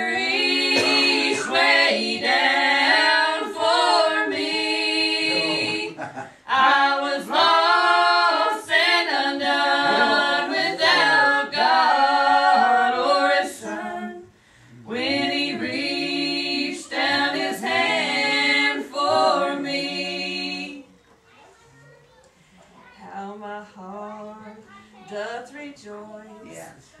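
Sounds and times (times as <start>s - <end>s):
people singing in harmony: 0.0s - 20.9s.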